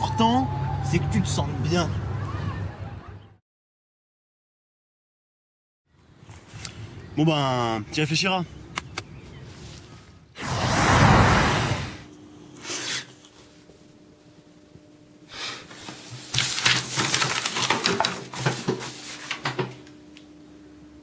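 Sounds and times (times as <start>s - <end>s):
faint steady hum: 5.9s - 21.0s
short rushing sound: 10.4s - 12.1s
paper rustling and scraping: 15.8s - 19.7s.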